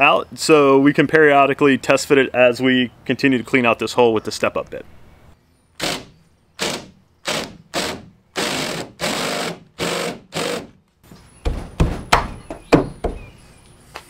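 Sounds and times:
cordless drill cutting sheet metal: 5.8s - 10.7s.

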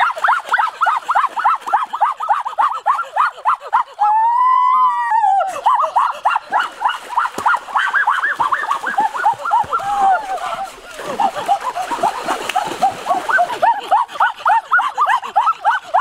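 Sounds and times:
long drawn-out cry: 2.0s - 7.0s.

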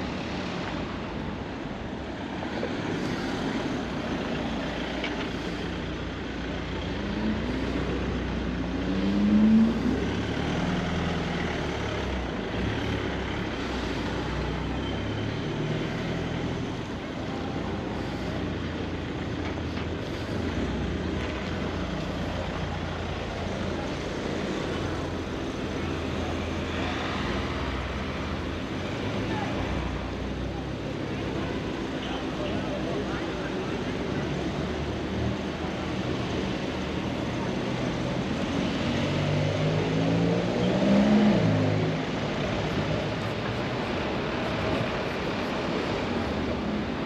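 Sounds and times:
traffic and street noise: 0.0s - 47.0s
car engine pulling away: 37.9s - 43.2s.

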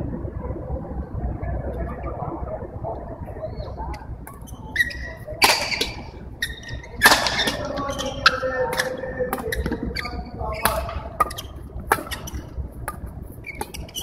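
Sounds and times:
sports hall murmur: 0.0s - 14.0s
racket hitting shuttlecock: 4.3s - 14.0s
shoes squeaking on court: 4.3s - 14.0s.

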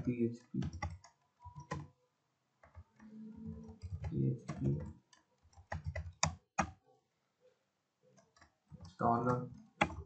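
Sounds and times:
computer keyboard keystrokes: 0.0s - 1.9s, 2.6s - 6.8s, 8.2s - 10.0s.

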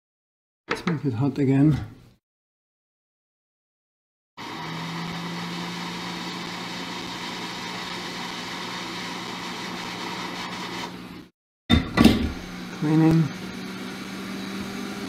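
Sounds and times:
hot air station hissing: 4.4s - 11.3s.

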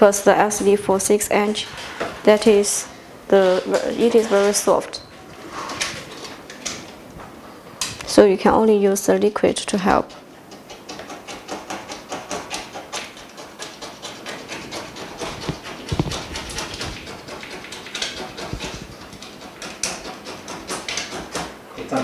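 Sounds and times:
fingers scratching glue off glass: 9.9s - 21.6s.

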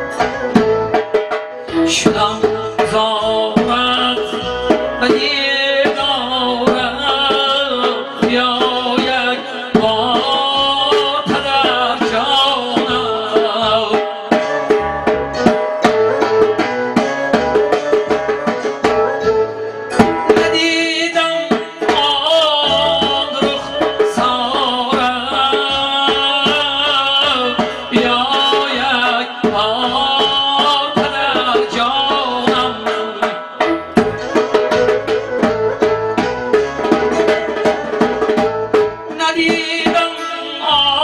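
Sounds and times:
keyboard lead melody: 0.0s - 41.0s.

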